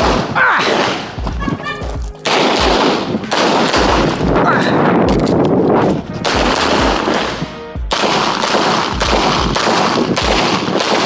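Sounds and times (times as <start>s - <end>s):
pistol shots in quick succession: 0.0s - 1.3s, 2.2s - 4.6s, 6.2s - 11.0s
background music with deep beat: 0.9s - 10.4s.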